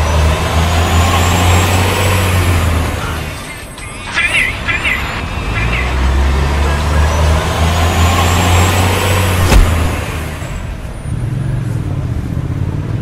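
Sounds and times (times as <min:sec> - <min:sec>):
heavy vehicle engine rumbling: 0:00.0 - 0:13.0
sharp knock: 0:09.4 - 0:10.0.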